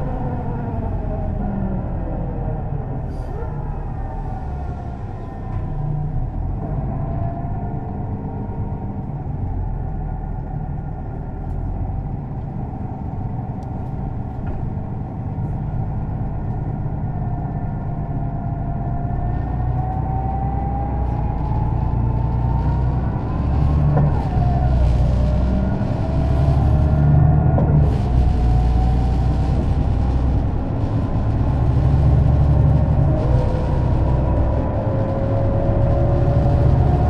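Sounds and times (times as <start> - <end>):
bus engine rumble: 0.0 - 37.0
gearbox whine: 16.8 - 37.0.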